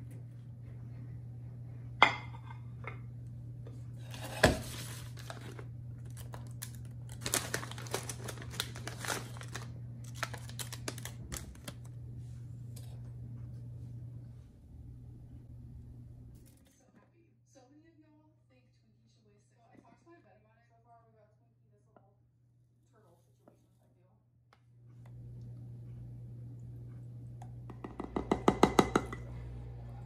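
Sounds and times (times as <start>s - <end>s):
low hum: 0.0s - 16.7s, 24.2s - 30.0s
dried kelp crackling into pot: 4.6s - 11.9s
plastic packet crinkling: 4.8s - 11.9s
plate knocking on counter: 27.7s - 29.2s.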